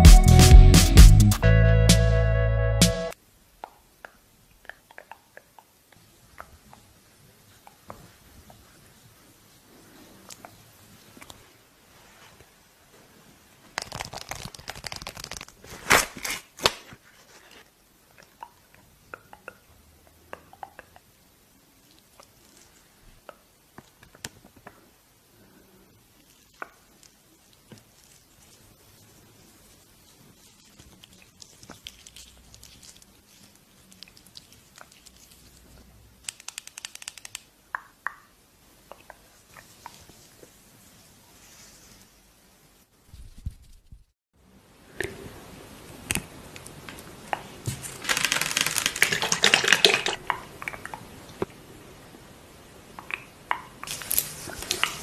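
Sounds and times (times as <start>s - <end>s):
sticky crackles of gel on skin: 13.8s - 16.0s, 30.3s - 37.5s, 53.0s - 55.0s
foil tearing: 13.8s - 16.9s, 47.8s - 50.2s, 53.9s - 55.0s
foil sachet crinkling: 13.8s - 17.6s, 30.3s - 35.5s, 47.7s - 50.2s, 53.9s - 55.0s
sticky clicks: 36.2s - 37.9s.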